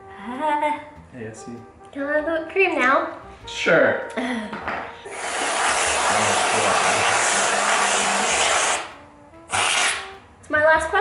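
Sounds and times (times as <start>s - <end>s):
aerosol can spraying hiss: 5.0s - 10.2s.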